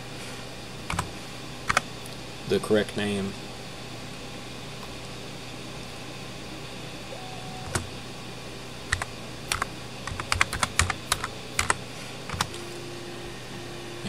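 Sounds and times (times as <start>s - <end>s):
typing on keyboard: 0.9s - 1.1s, 8.9s - 12.5s.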